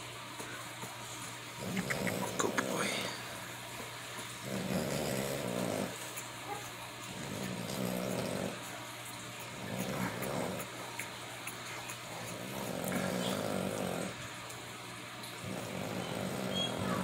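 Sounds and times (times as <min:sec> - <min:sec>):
puppy grunting and snuffling: 0:00.6 - 0:17.0
puppy squeaking: 0:16.0 - 0:17.0.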